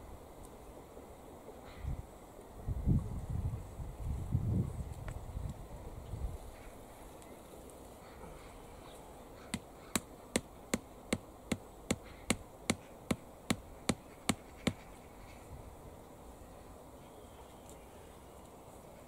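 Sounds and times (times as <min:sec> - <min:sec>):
hammer striking wooden stake: 0:09.5 - 0:14.9.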